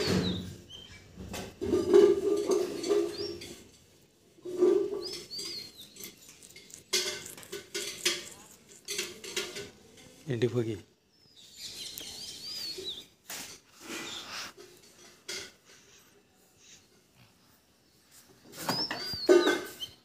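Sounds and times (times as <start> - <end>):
metal clinking and rattling: 1.6 - 10.2.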